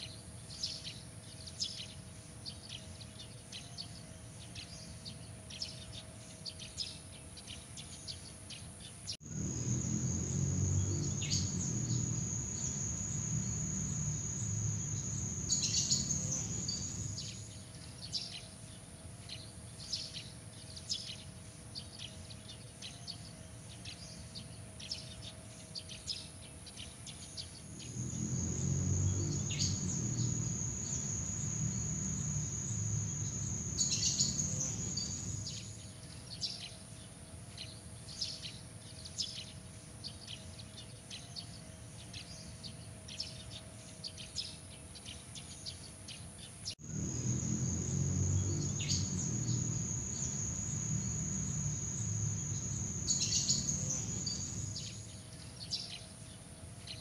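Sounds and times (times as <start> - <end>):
low rumble: 9.2 - 17.3
insects trilling: 9.2 - 17.6, 27.6 - 35.8, 46.8 - 55.2
bird chirps: 9.2 - 18.5, 26.8 - 36.6, 46.8 - 56.0.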